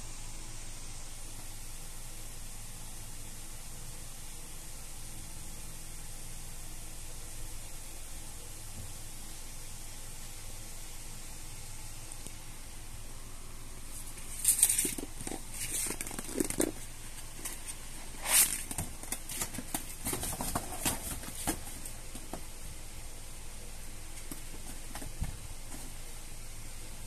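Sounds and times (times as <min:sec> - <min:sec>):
background hiss: 0:00.0 - 0:27.0
cats scuffling on hard floor: 0:13.9 - 0:22.5, 0:24.1 - 0:26.1.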